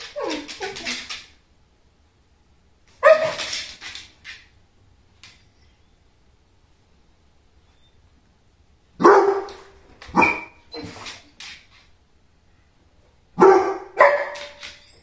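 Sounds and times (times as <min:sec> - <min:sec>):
dog barking: 0:03.0 - 0:03.4, 0:09.0 - 0:10.6, 0:13.4 - 0:14.6.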